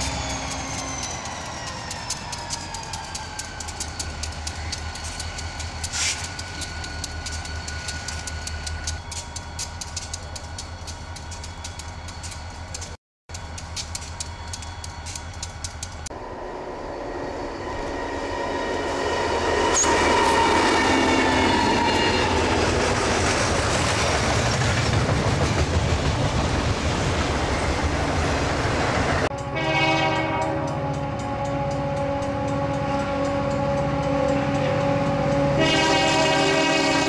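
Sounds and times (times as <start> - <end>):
freight cars rumbling on rails: 0.0 - 37.0
train horn: 18.4 - 22.7, 29.3 - 37.0.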